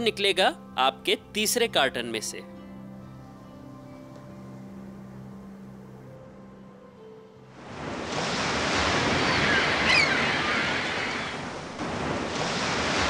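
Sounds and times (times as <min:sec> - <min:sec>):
ocean surf washing onto beach: 0:07.6 - 0:13.0.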